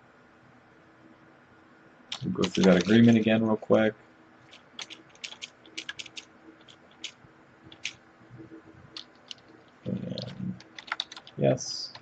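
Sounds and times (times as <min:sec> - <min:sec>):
keyboard key clicks: 0:04.5 - 0:08.0, 0:09.0 - 0:09.4, 0:10.2 - 0:11.4.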